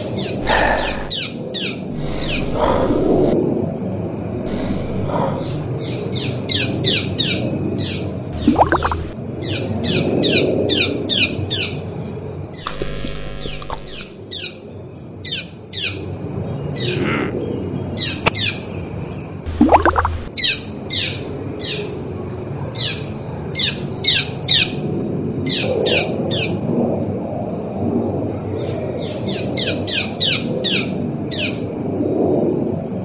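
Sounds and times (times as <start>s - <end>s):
short steady tone: 2.0s - 3.3s, 4.5s - 5.6s, 12.7s - 14.1s, 19.5s - 20.3s
low rumble: 2.0s - 3.4s, 4.4s - 5.7s.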